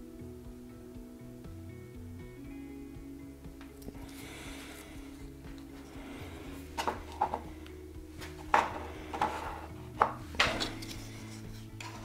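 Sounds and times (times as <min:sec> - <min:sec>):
quiet background music: 0:00.0 - 0:12.0
hand tools tapping on workbench: 0:06.7 - 0:07.5, 0:08.2 - 0:11.0.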